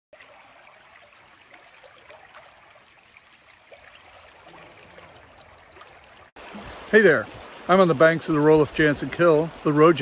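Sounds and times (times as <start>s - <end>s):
creek water babbling over stones: 0.1s - 10.0s.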